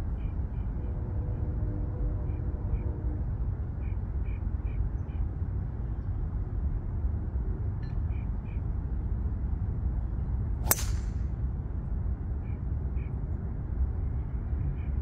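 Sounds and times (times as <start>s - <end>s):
golf club striking ball: 10.6s - 11.2s.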